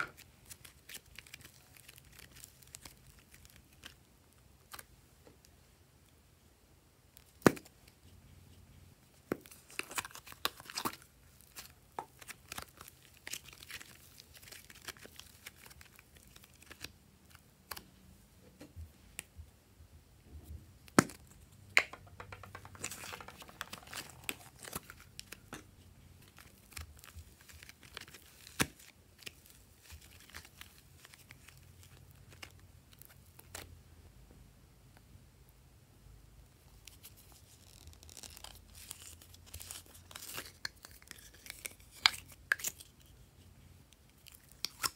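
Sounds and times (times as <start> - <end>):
plastic cups crinkling and clicking: 21.8 - 31.6.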